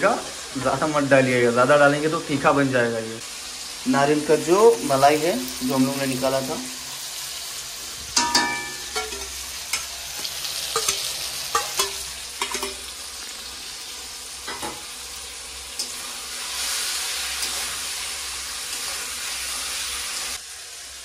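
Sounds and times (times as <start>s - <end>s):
food sizzling: 0.0s - 21.0s
ringing metal clink: 8.2s - 9.2s
metal spatula scraping pan: 15.8s - 18.0s.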